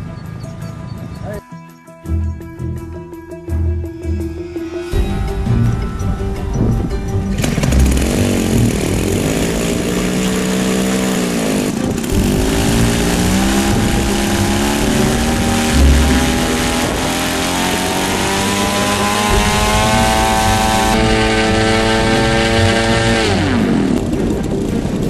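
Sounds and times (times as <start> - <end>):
small piston engine running: 7.4 - 25.0.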